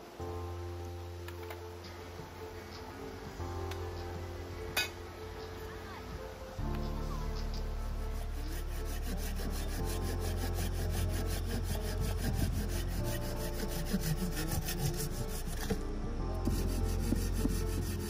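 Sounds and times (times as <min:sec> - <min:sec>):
hand saw cutting log: 0:07.4 - 0:15.8, 0:16.4 - 0:18.0.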